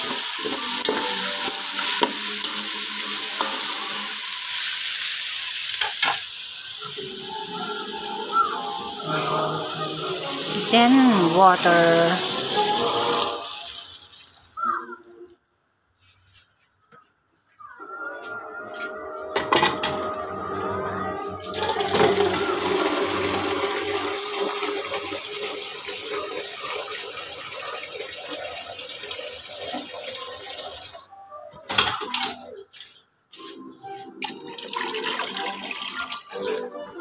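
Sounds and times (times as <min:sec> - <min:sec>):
water running: 0:00.0 - 0:14.8, 0:21.4 - 0:31.1, 0:34.2 - 0:37.0.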